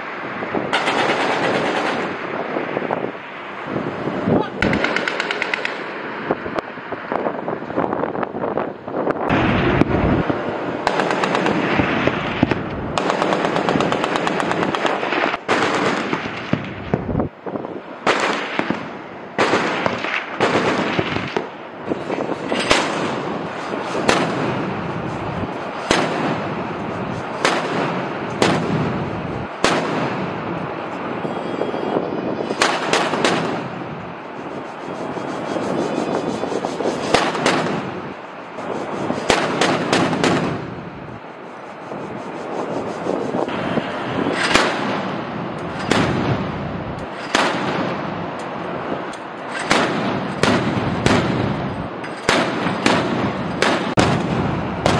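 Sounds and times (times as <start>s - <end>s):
steady rushing noise: 0.0s - 54.9s
naval gun firing: 4.6s - 5.8s, 10.8s - 11.8s, 13.0s - 16.6s, 18.0s - 21.3s, 25.8s - 26.6s, 27.4s - 29.0s, 29.6s - 30.3s, 32.6s - 33.8s, 37.1s - 38.0s, 39.3s - 40.7s, 44.4s - 45.2s, 45.8s - 46.5s, 47.2s - 48.0s, 49.6s - 54.9s.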